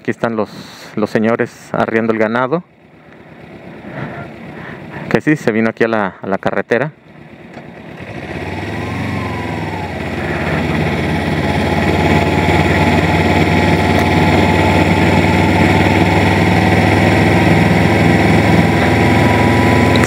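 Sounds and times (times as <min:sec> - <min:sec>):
motorcycle engine running: 0:02.2 - 0:05.6, 0:06.9 - 0:20.0
wind and road noise: 0:07.0 - 0:20.0.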